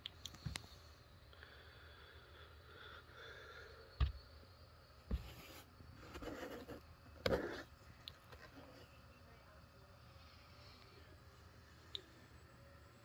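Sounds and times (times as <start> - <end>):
scratching on cardboard: 5.1 - 9.0.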